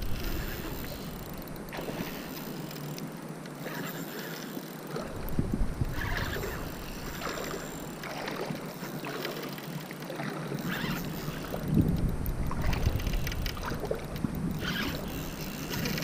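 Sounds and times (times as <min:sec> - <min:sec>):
wind buffeting microphone: 0:00.0 - 0:02.1, 0:04.9 - 0:08.6, 0:10.6 - 0:16.0
small waves lapping: 0:00.0 - 0:16.0.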